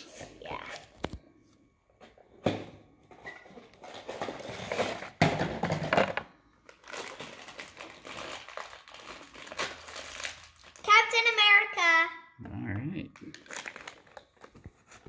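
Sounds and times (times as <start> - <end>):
foil bag crinkling: 6.6 - 11.2, 13.2 - 14.6.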